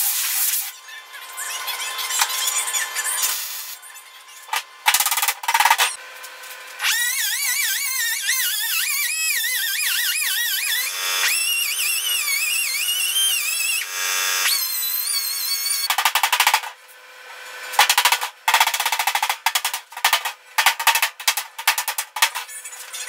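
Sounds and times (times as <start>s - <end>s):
spot welding crackle: 0.0s - 0.7s
air grinder whining: 1.4s - 18.2s.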